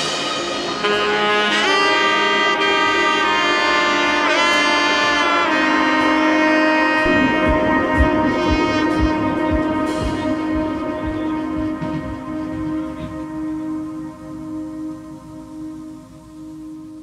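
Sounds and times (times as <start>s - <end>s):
steady drum beat: 7.0s - 13.6s.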